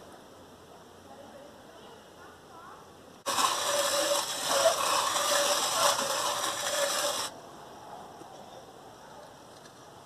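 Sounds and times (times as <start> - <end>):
hand-cranked mill grinding: 3.2 - 7.3.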